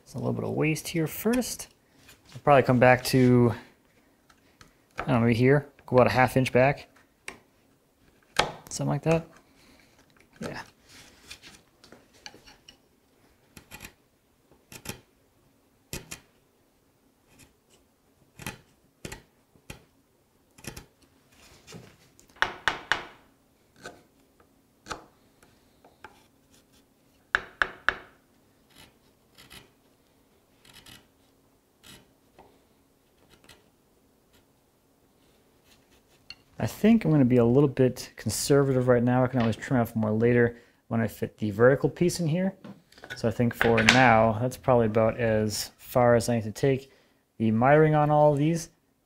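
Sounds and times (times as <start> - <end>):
chisel slicing and scraping wood: 13.5 - 14.0, 14.7 - 15.1, 17.3 - 19.9, 23.8 - 24.1, 28.7 - 29.8, 30.6 - 31.2.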